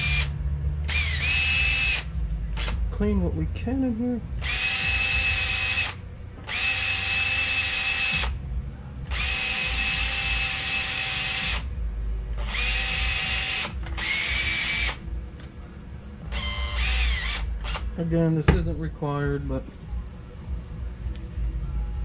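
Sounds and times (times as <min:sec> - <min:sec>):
small power tool whining: 0:00.0 - 0:02.8, 0:04.4 - 0:08.4, 0:09.1 - 0:11.7, 0:12.4 - 0:15.1, 0:16.3 - 0:17.9.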